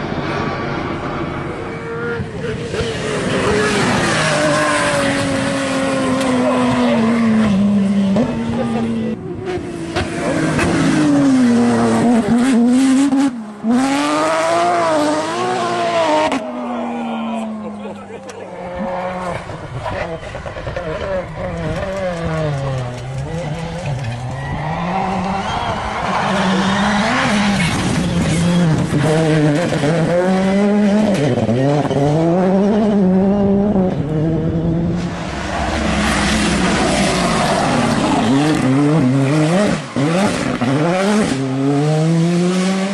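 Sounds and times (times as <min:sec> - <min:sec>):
rally car engine revving: 0:00.0 - 0:42.9.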